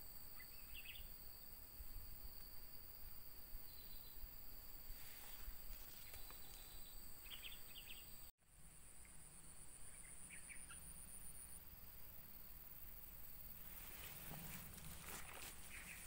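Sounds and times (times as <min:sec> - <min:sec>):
insects trilling: 0:00.0 - 0:16.0
bird chirps: 0:00.4 - 0:01.1, 0:03.6 - 0:04.2, 0:05.3 - 0:08.3, 0:09.8 - 0:10.9, 0:15.6 - 0:16.0.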